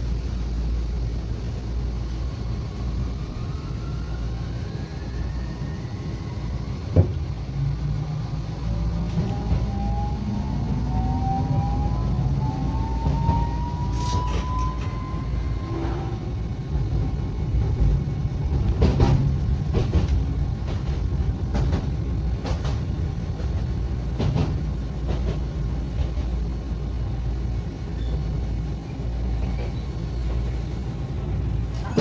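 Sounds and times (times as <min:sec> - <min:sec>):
low rumble of railcar: 0:00.0 - 0:32.0
wheels clacking on track: 0:16.6 - 0:26.5.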